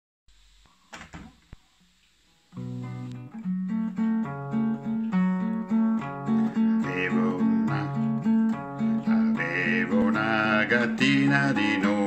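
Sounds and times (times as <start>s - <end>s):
acoustic guitar strumming: 2.3s - 12.0s
man singing: 6.3s - 12.0s.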